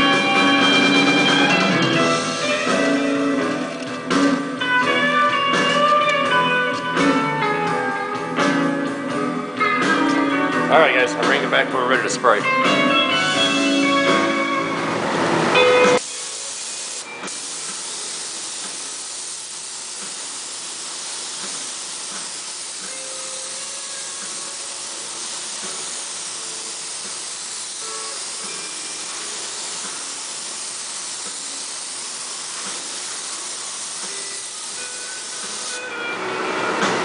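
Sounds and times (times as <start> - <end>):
spray gun hissing: 16.0 - 36.0.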